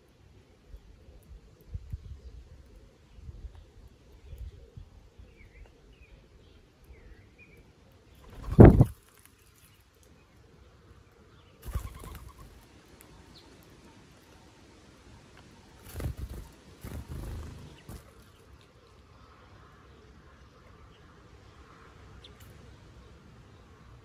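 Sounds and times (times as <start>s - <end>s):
faint small bird chirps: 0.4s - 14.6s
dove wings fluttering: 8.2s - 9.4s, 11.6s - 12.7s, 15.7s - 18.6s.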